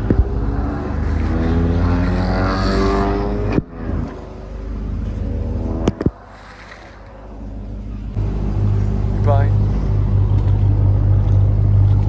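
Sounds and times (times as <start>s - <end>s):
vehicle engine accelerating: 0.0s - 12.0s.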